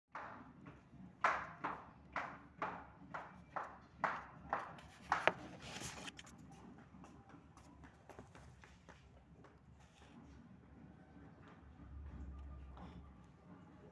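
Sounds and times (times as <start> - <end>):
faint handling noise: 4.8 - 6.4.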